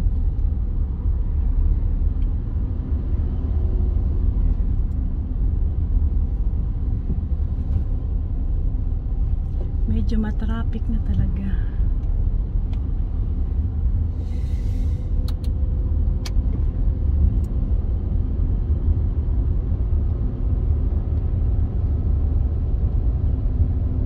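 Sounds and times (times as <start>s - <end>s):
car engine and tyres rumbling: 0.0s - 24.0s
short hiss: 14.2s - 15.2s.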